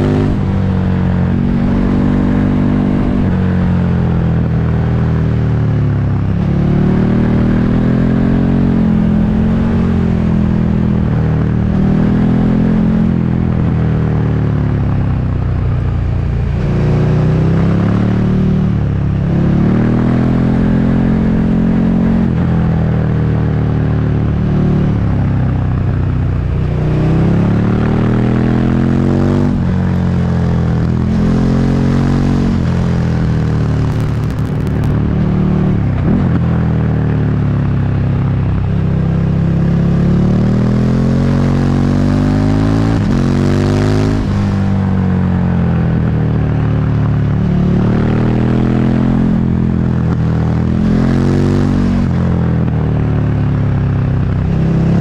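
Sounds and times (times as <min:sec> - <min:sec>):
motorcycle engine revving: 0:00.0 - 0:55.0
wind and road noise: 0:00.0 - 0:55.0.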